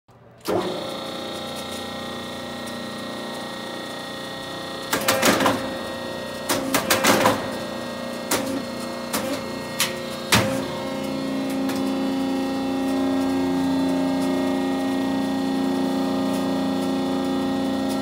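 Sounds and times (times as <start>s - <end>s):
hydraulic pump motor humming: 0.4s - 18.0s
crimping machine clicking: 4.8s - 5.8s, 6.4s - 18.0s.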